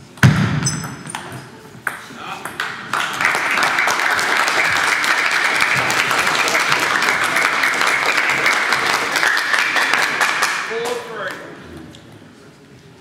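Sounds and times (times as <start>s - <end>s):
spectators clapping: 2.5s - 11.5s.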